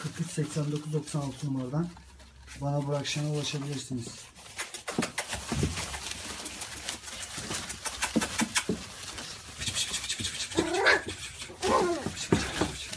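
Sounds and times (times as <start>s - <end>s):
newspaper rustling and crackling: 0.0s - 9.6s
puppy crying: 10.5s - 12.2s.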